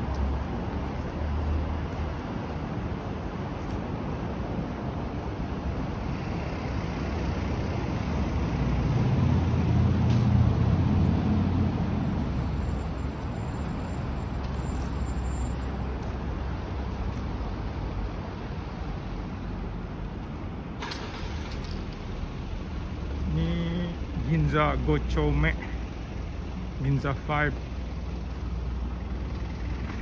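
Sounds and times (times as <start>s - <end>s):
background traffic noise: 0.0s - 30.0s
vehicle driving past: 6.1s - 12.8s.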